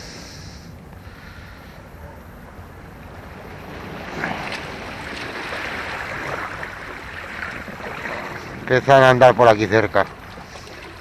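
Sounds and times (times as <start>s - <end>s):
sea waves washing against rocks: 2.5s - 11.0s.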